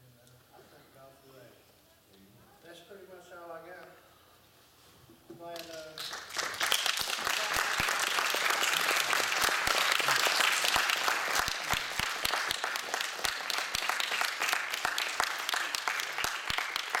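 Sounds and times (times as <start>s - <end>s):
congregation applauding: 5.5s - 17.0s
separate claps: 5.5s - 17.0s.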